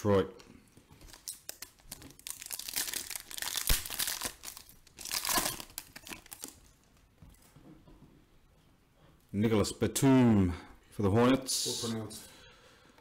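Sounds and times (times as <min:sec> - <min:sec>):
card pack wrapper crinkling and tearing: 0:01.0 - 0:06.9.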